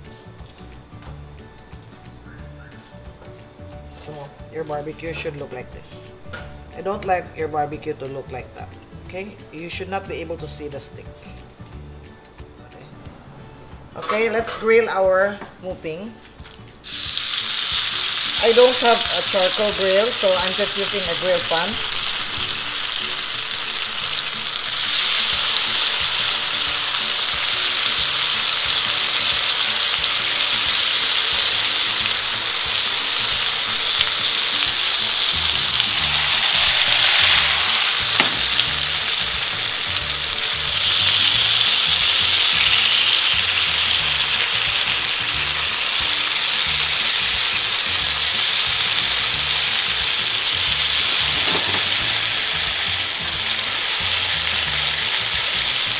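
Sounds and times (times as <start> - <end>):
pork skewers sizzling on grill pan: 16.8 - 55.9.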